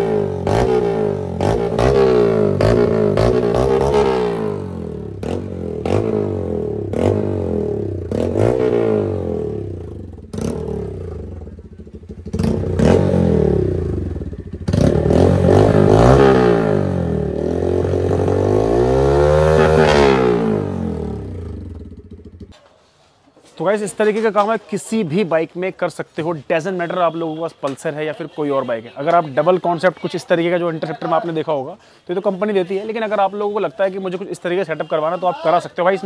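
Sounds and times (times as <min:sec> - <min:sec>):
motorcycle engine revving: 0:00.0 - 0:22.6.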